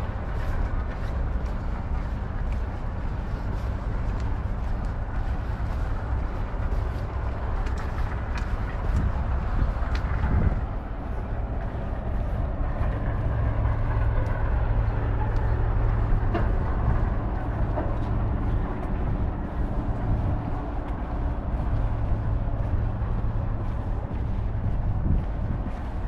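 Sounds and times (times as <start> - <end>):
background hum: 0.0 - 26.0
urban traffic rumble: 0.0 - 26.0
faint ticks: 0.4 - 10.4.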